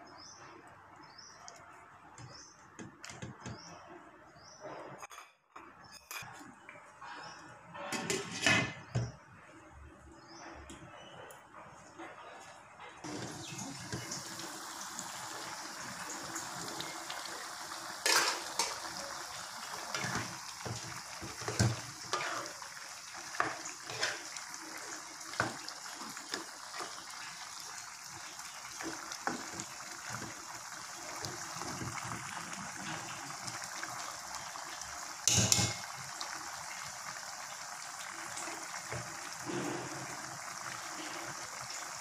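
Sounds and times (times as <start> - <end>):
food sizzling in a pan: 13.0 - 42.0.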